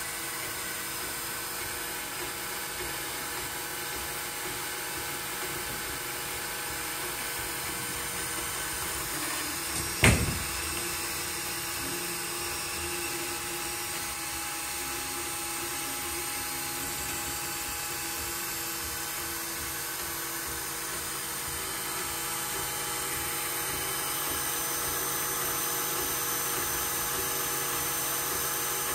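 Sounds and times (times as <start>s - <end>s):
cooling fans whirring: 0.0s - 28.9s
stepper motors whining: 0.0s - 28.9s.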